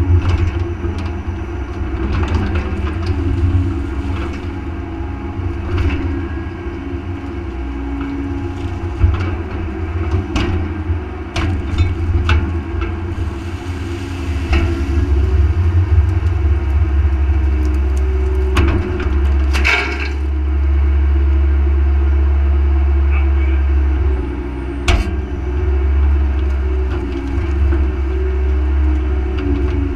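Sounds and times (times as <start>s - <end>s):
excavator diesel engine running: 0.0s - 29.9s.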